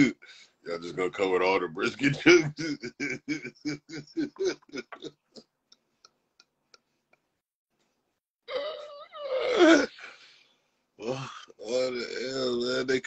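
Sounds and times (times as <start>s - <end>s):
man laughing: 1.9s - 5.2s.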